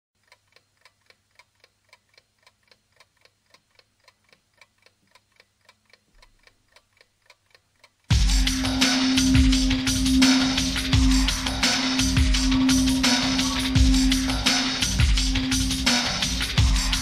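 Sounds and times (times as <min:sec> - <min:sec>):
faint clock ticking: 0:00.2 - 0:17.0.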